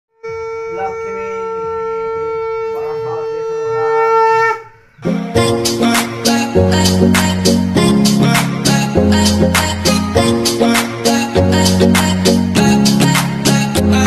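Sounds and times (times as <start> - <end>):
conch shell blown: 0.2 - 4.8.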